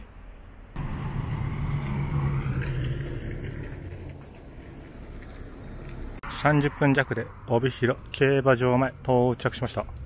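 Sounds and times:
diesel bus engine: 0:00.8 - 0:06.6.

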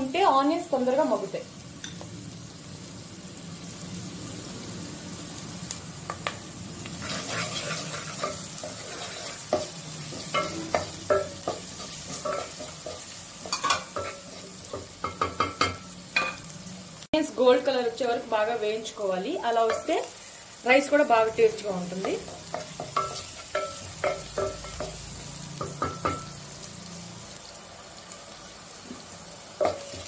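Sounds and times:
onions sizzling in oil: 0:00.0 - 0:30.0
spatula scraping and knocking pan: 0:07.0 - 0:16.5, 0:22.0 - 0:25.0.

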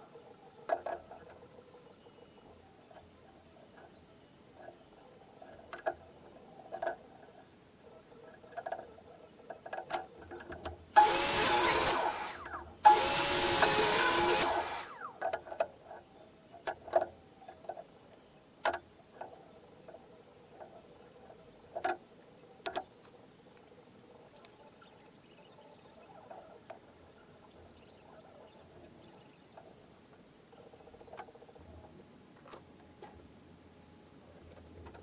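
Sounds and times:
electric power tool running: 0:11.0 - 0:15.2.

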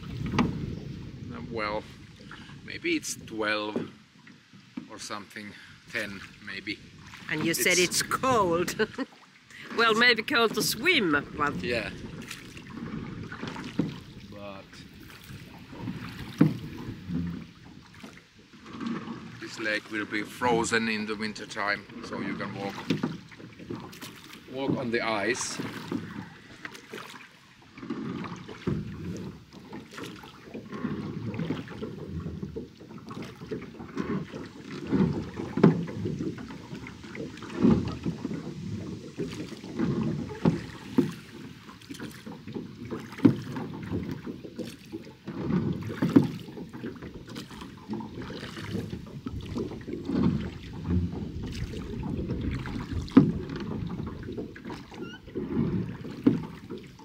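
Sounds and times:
oars pulling through water: 0:00.0 - 0:57.0
water splashing and sloshing: 0:00.0 - 0:57.0.

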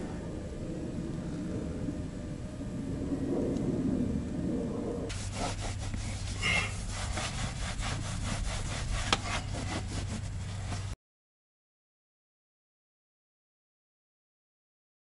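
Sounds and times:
low hum: 0:00.0 - 0:11.0
rag rubbing leather seat: 0:05.1 - 0:11.0.

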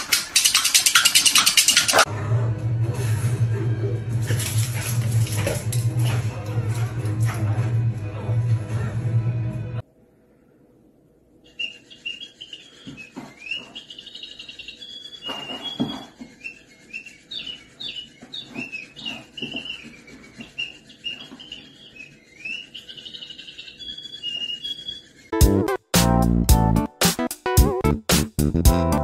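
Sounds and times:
small birds chirping: 0:11.4 - 0:25.4.

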